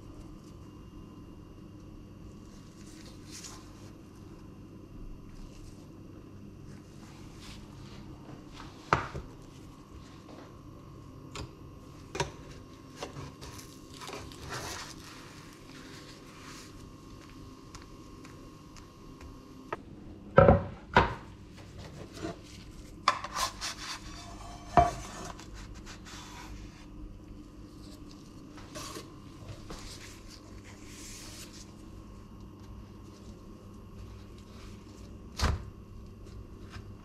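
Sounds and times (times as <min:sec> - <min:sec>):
faint steady hum: 0:00.0 - 0:37.0
pan scraping cutting board: 0:23.1 - 0:26.4.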